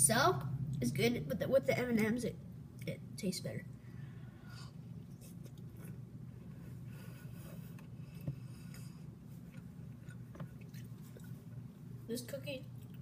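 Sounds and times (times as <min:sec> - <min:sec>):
steady low hum: 0:00.0 - 0:13.0
chewing cookie: 0:05.0 - 0:06.6, 0:07.6 - 0:11.9.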